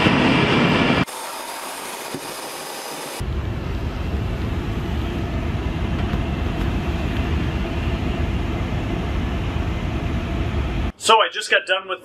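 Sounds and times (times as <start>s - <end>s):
gas furnace running rumble: 3.2s - 10.9s.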